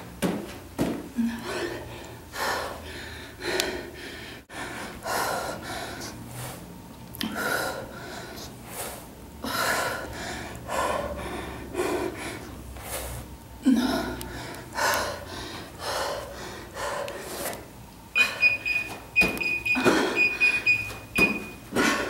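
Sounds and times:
woman gasping breaths: 0:01.2 - 0:06.6, 0:07.2 - 0:17.6.

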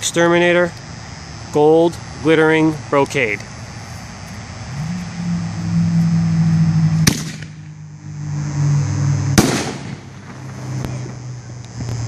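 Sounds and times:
firework shell booming: 0:07.0 - 0:07.7, 0:09.4 - 0:11.2.

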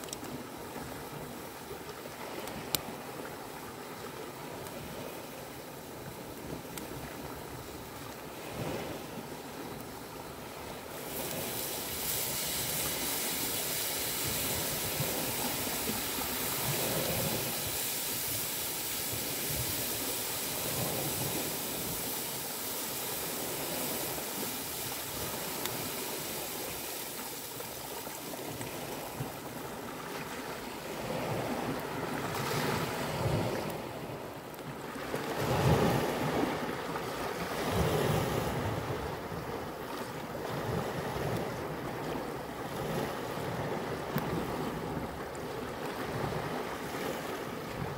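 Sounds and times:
waves washing on rocky shore: 0:00.0 - 0:47.9.

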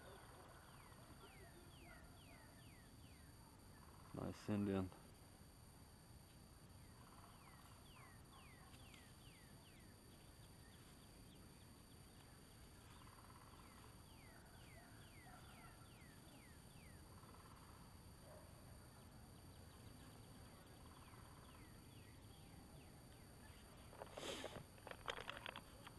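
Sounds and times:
faint birdsong whistles: 0:00.0 - 0:03.9, 0:06.8 - 0:17.6, 0:18.2 - 0:24.0.

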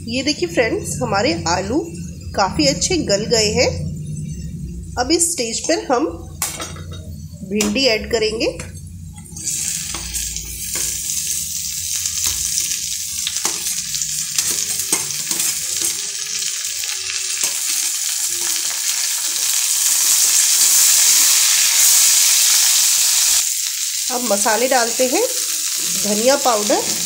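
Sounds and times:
okra sizzling in hot oil: 0:00.1 - 0:27.0
metal spatula scraping and tapping: 0:08.6 - 0:11.2, 0:13.3 - 0:16.2.

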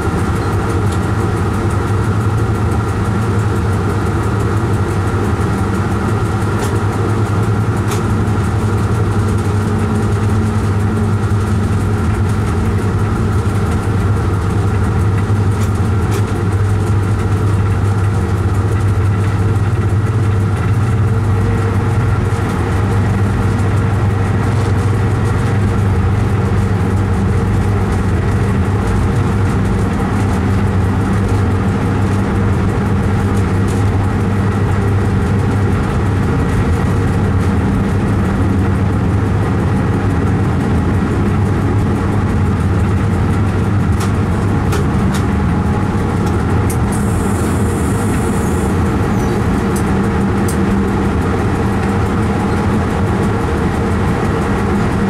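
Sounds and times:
locomotive hum: 0:00.0 - 0:55.0
train wheels on rails: 0:00.0 - 0:55.0.

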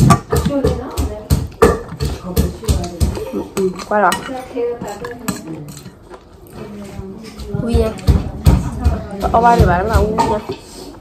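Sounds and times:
utensils clinking against dishes: 0:00.0 - 0:11.0.

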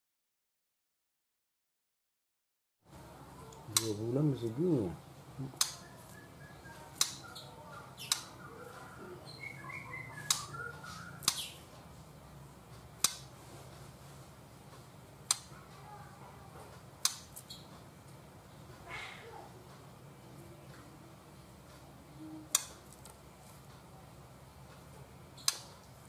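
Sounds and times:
sharp clicks: 0:03.7 - 0:04.0, 0:05.5 - 0:05.9, 0:06.9 - 0:07.3, 0:08.0 - 0:08.4, 0:10.2 - 0:10.6, 0:11.2 - 0:11.5, 0:13.0 - 0:13.3, 0:15.2 - 0:15.5, 0:17.0 - 0:17.6, 0:22.5 - 0:23.2, 0:25.4 - 0:25.9
bird warbling chirps: 0:05.7 - 0:11.6.

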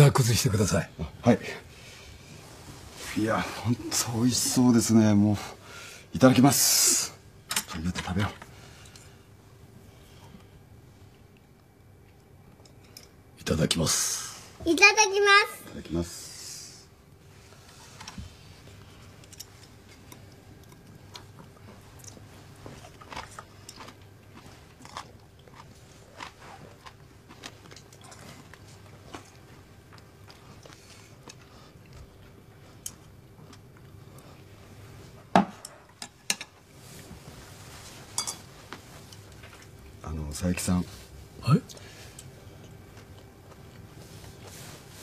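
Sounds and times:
people chewing and crunching: 0:17.2 - 0:40.3, 0:41.4 - 0:45.0
chopsticks clinking against dishes: 0:38.1 - 0:38.5.

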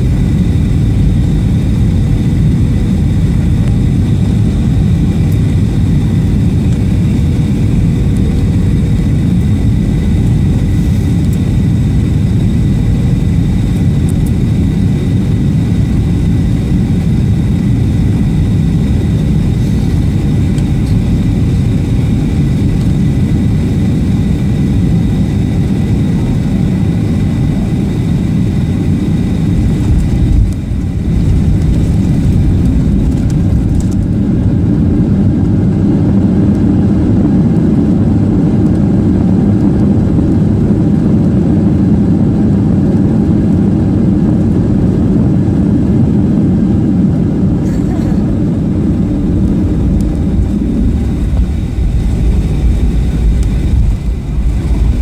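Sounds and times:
rushing air: 0:00.0 - 0:12.9, 0:18.5 - 0:22.3, 0:27.9 - 0:35.9, 0:48.2 - 0:55.0
deep runway rumble: 0:00.0 - 0:55.0
jet engines roaring: 0:00.0 - 0:55.0.

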